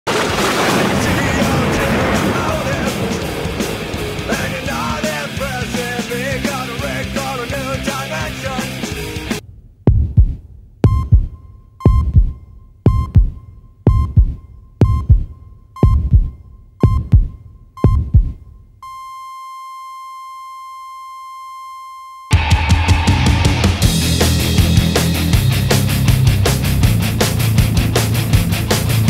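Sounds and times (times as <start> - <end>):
heavy rock music: 0.2 - 9.4, 22.3 - 29.0
heartbeat thumps: 9.4 - 18.8
heart monitor beep: 10.8 - 22.4
flatline monitor tone: 10.9 - 22.5.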